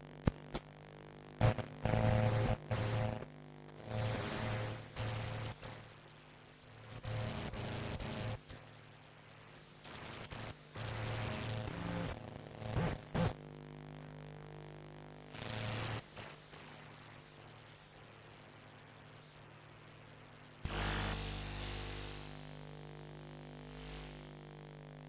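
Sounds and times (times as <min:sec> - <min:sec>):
buzzing electromagnetic hum: 0:00.0 - 0:25.0
crackling static bursts: 0:00.0 - 0:25.0.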